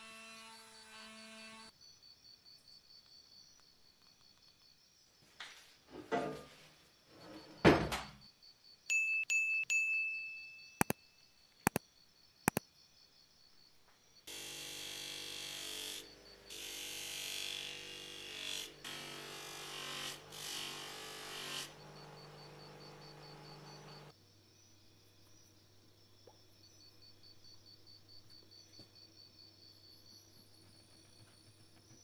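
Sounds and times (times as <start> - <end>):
chime-like dings: 8.9 - 10.8
bench grinder running: 14.3 - 24.1
metal polished on buffing wheel: 15.5 - 24.1.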